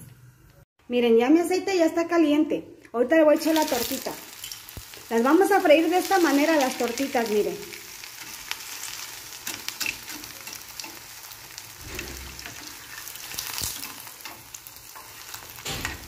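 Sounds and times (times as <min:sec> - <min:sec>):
patty sizzling in hot oil: 0:03.4 - 0:16.0
metal spatula scraping pan: 0:08.3 - 0:16.0.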